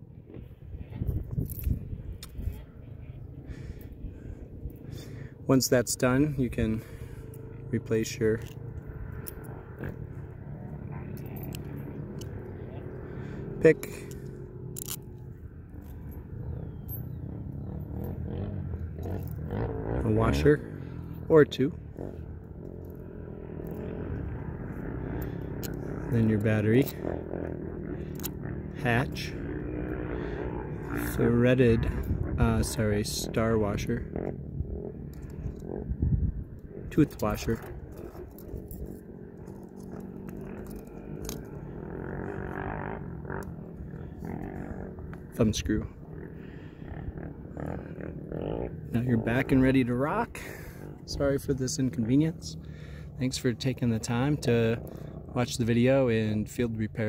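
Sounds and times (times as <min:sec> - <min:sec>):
wind rumble on microphone: 0:00.0 - 0:05.2, 0:31.6 - 0:39.0
low background rumble: 0:00.0 - 0:57.0
metal washer clicks and scrapes: 0:14.7 - 0:15.1.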